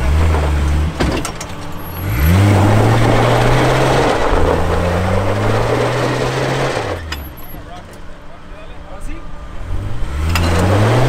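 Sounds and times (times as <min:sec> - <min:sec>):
tyres spinning in loose dirt: 0:00.0 - 0:08.6
engine revving hard: 0:01.9 - 0:07.2, 0:09.6 - 0:11.0.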